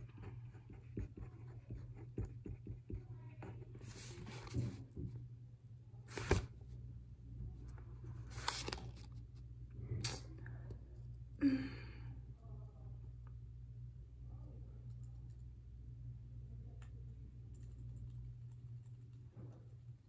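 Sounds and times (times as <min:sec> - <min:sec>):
faint low hum: 0:00.0 - 0:20.0
paper pages rustling: 0:08.2 - 0:09.4.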